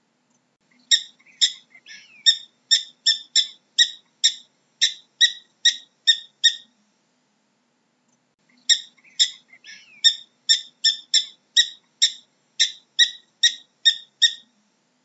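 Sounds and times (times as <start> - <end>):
ground squirrel alarm chirps: 0.8 - 6.7, 8.6 - 14.5.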